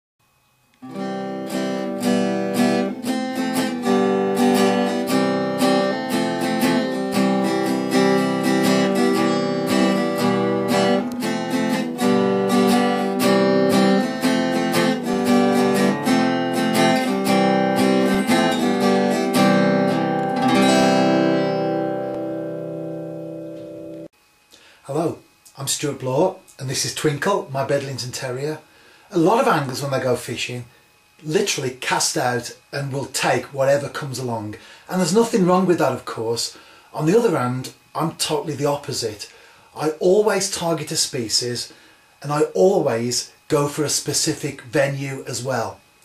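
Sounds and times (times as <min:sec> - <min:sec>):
strummed acoustic guitar: 0:00.8 - 0:24.1.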